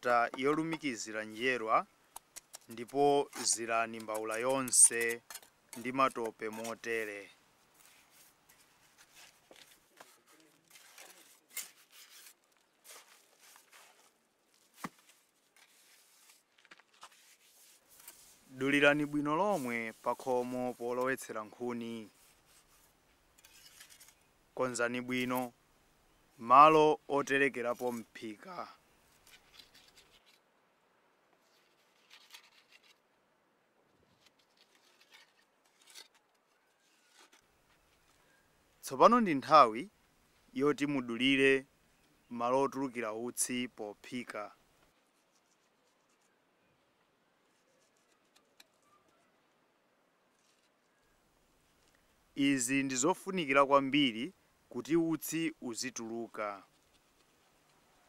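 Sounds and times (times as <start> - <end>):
trowel scraping wet mortar: 2.3 - 6.9.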